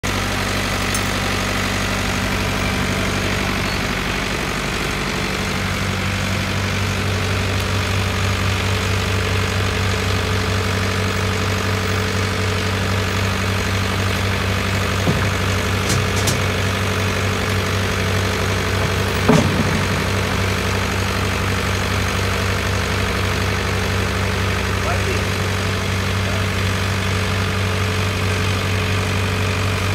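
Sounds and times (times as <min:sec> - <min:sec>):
diesel engine idling: 0:00.0 - 0:29.9
metal clanks: 0:15.0 - 0:16.7, 0:18.7 - 0:21.1
loud knock: 0:19.2 - 0:20.5.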